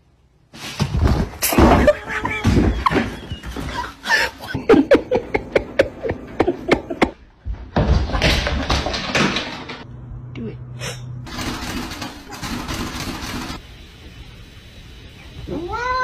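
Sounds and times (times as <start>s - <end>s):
people laughing: 1.7s - 7.2s.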